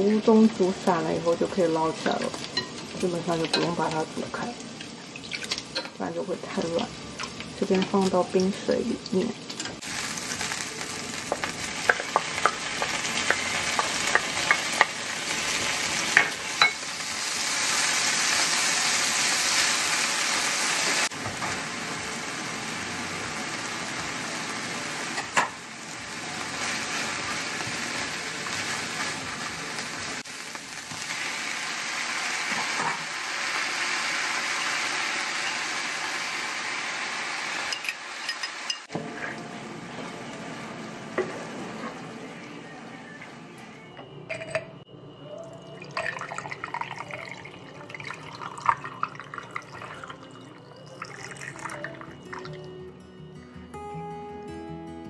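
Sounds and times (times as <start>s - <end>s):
food sizzling in oil: 0.0s - 42.1s.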